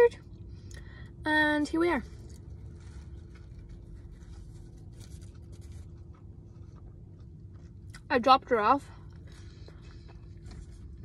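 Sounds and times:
steady low hum: 0.0s - 11.0s
chewing a burger: 2.0s - 8.1s, 8.8s - 11.0s.

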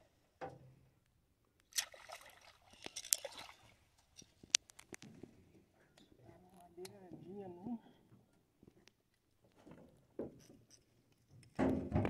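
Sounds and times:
sharp smacks on water: 1.7s - 2.3s
fish splashing in water: 1.7s - 3.8s.

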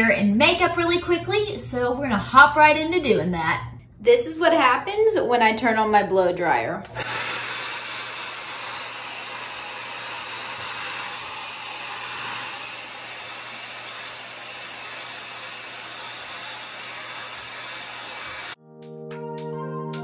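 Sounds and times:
hair dryer air rush: 6.9s - 18.6s.

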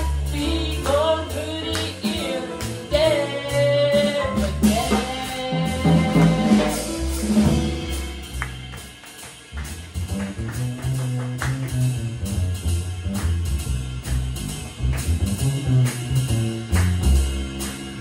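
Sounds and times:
plucked upright bass: 0.0s - 8.9s, 9.5s - 18.0s
drum kit strokes: 0.0s - 18.0s
piano: 0.0s - 18.0s.

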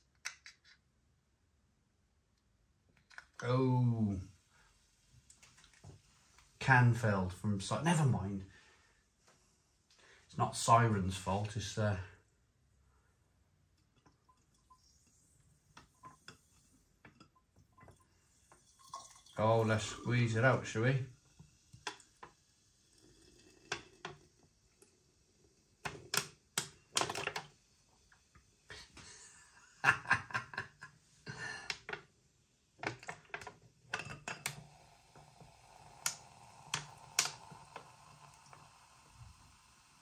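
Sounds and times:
drinks can clicking and crackling: 21.4s - 22.4s, 23.0s - 24.9s, 25.8s - 28.2s, 32.8s - 39.2s.

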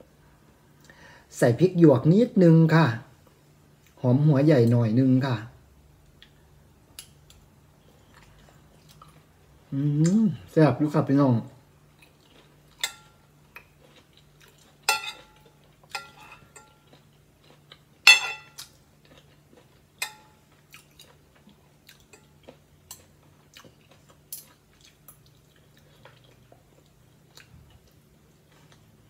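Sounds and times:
soft chewing: 6.0s - 10.5s, 11.8s - 29.0s
cutlery clinking on glass plate: 14.9s - 16.9s, 18.1s - 18.6s, 20.0s - 20.4s.

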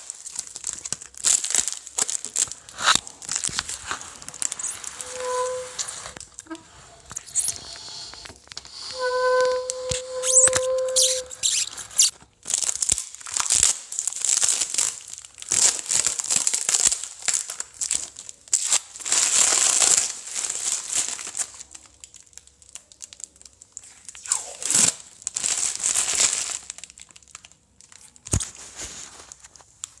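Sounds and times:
tape tearing and peeling: 0.0s - 13.8s, 24.2s - 26.6s, 28.2s - 28.7s
plastic crinkling: 0.0s - 30.0s.

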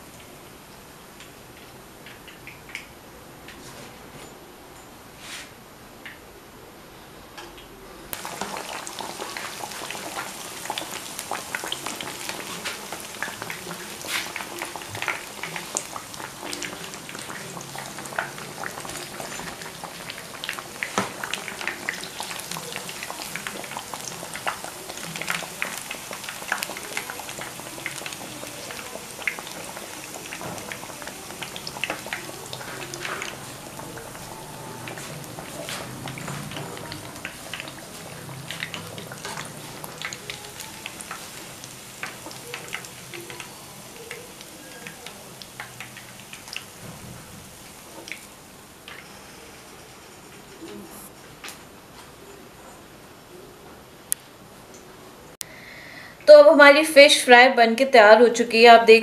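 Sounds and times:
fish frying with crackles: 8.1s - 52.3s.

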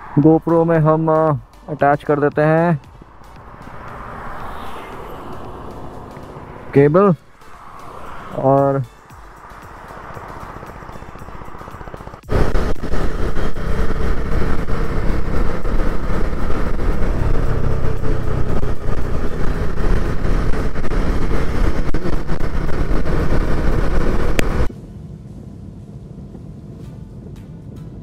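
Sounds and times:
road and wind noise: 0.0s - 28.0s
motorcycle engine: 2.8s - 24.7s.

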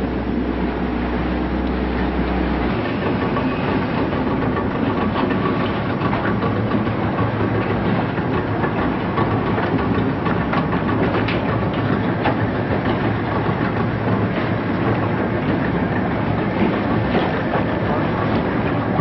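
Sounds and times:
boat engines running: 0.0s - 19.0s
rushing water: 0.0s - 19.0s
wind: 0.0s - 19.0s.

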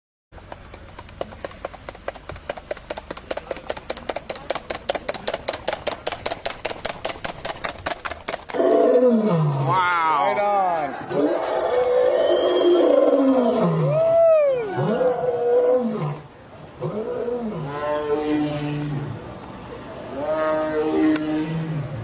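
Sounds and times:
hooves galloping on wet pavement: 0.4s - 8.6s.

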